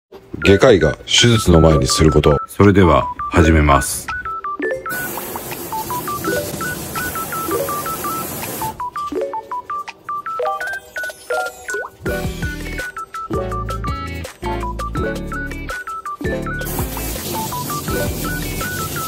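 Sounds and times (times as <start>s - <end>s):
electronic beeping music: 0.4s - 19.0s
steady hiss: 4.9s - 8.8s, 16.7s - 19.0s.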